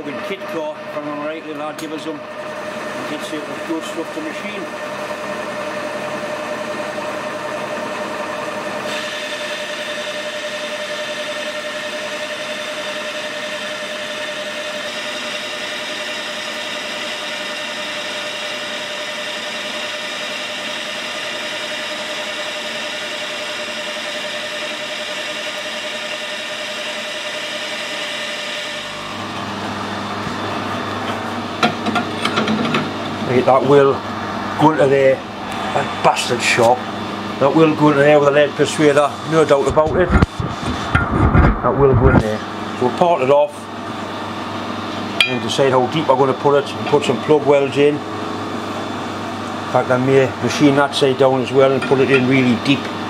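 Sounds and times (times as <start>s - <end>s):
machine hum: 0.0s - 53.0s
lathe cutting steel hiss: 8.8s - 29.0s.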